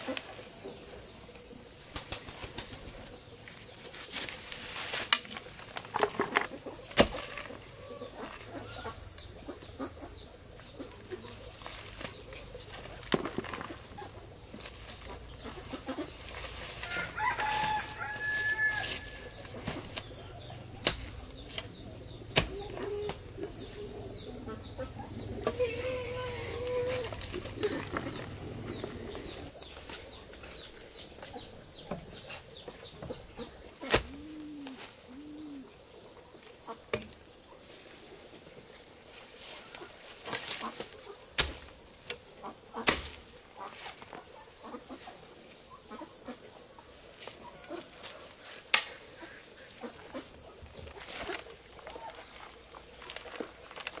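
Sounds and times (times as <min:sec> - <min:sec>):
chickens clucking: 0:05.8 - 0:35.6, 0:42.1 - 0:53.9
rooster crowing: 0:16.8 - 0:19.4.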